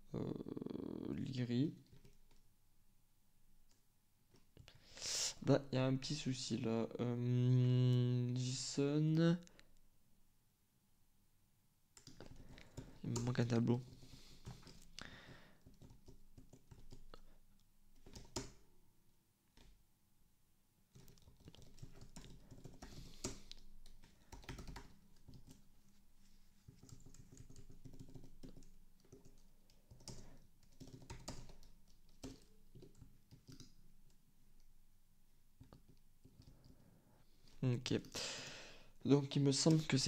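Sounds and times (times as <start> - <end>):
faint computer keyboard typing: 1.8 - 2.5, 11.9 - 18.6, 19.5 - 19.8, 20.9 - 25.8, 26.6 - 34.8, 35.6 - 36.9.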